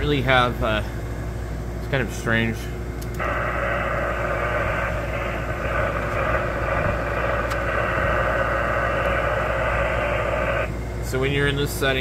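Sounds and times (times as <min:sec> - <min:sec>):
air conditioner hum: 0:00.0 - 0:12.0
radio static: 0:03.2 - 0:10.7.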